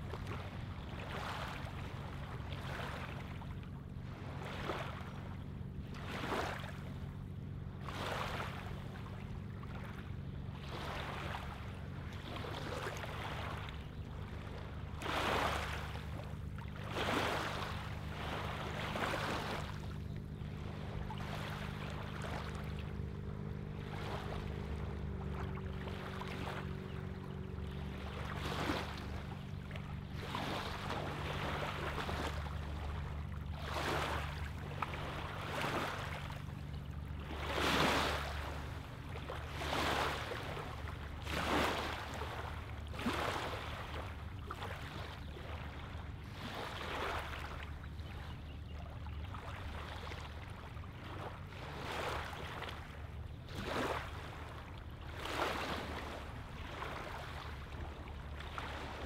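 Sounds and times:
steady low hum: 0.0s - 59.0s
wavelets lapping on gravel shore: 14.4s - 19.9s, 37.3s - 38.7s, 39.3s - 45.5s, 51.0s - 59.0s.

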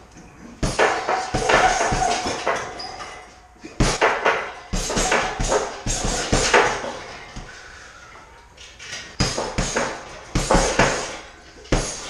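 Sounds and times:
gloved punches on heavy bag: 0.6s - 2.8s, 3.8s - 7.5s, 9.2s - 12.0s.

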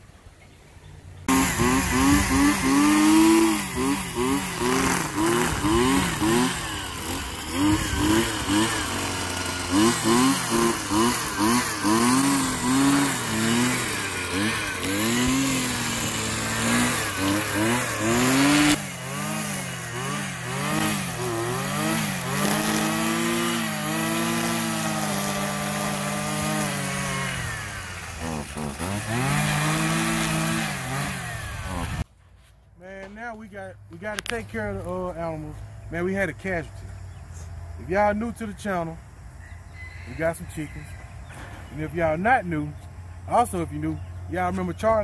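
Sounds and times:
string trimmer engine revving: 1.2s - 32.1s.

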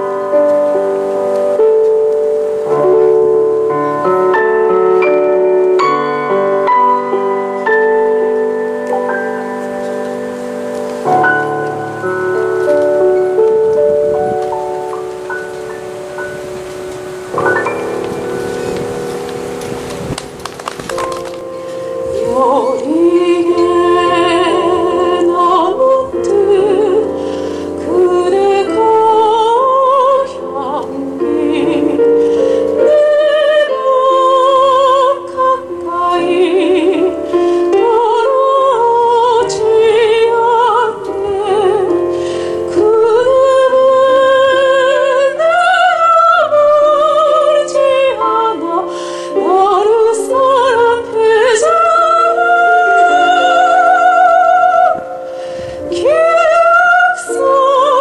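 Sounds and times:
piano accompaniment: 0.0s - 58.0s
soprano singing operatically: 21.4s - 58.0s.

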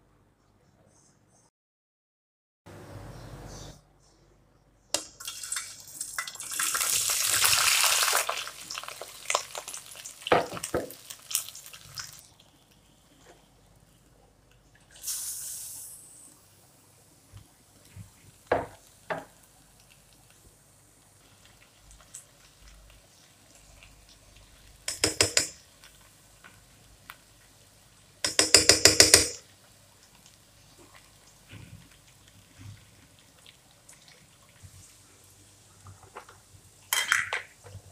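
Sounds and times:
short hiss: 15.0s - 16.3s
ringing metal taps on pot: 28.2s - 29.4s.

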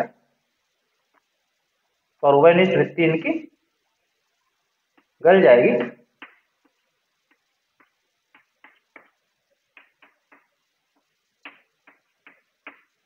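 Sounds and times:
chalk tapping on blackboard: 5.8s - 13.0s.

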